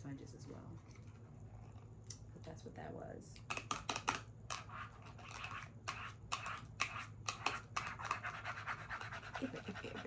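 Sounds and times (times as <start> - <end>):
nails tapping on plastic package: 3.4 - 4.3.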